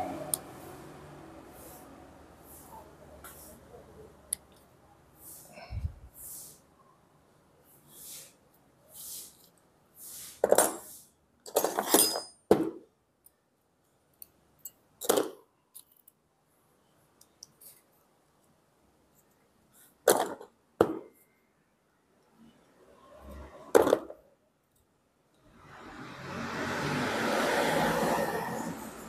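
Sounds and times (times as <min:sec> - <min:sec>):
metal parts clicking and scraping: 0:10.4 - 0:12.5, 0:14.2 - 0:16.2.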